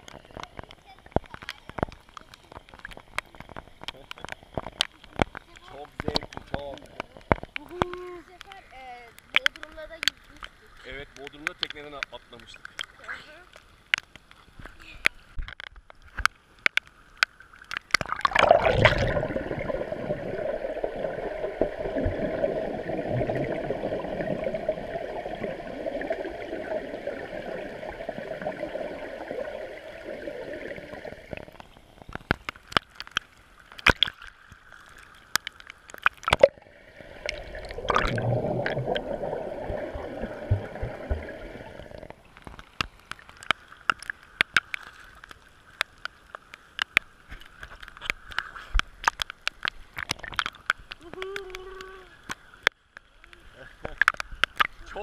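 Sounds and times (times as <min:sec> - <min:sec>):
raindrops hitting pool surface: 0:00.0 - 0:55.0
water splashing: 0:00.0 - 0:55.0
muffled underwater rushing and bubbling: 0:17.8 - 0:33.0, 0:33.7 - 0:43.1.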